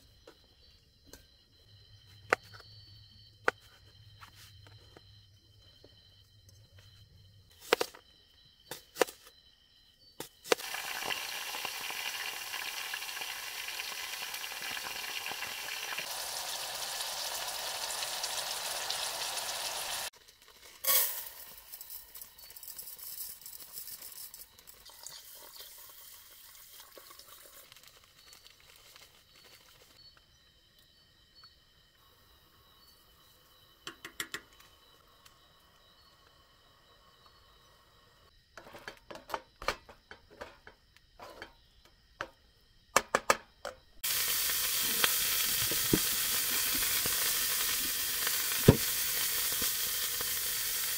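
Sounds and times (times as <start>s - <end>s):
vegetables sizzling in a pot: 10.4s - 29.6s, 44.0s - 50.9s.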